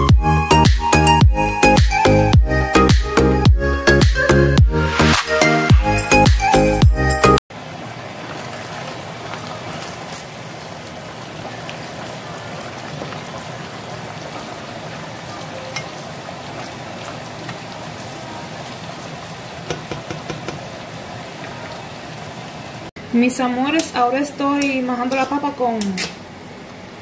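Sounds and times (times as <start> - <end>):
food sizzling in hot oil: 7.5 - 22.9
spatula clicking against a pan: 24.6 - 26.2.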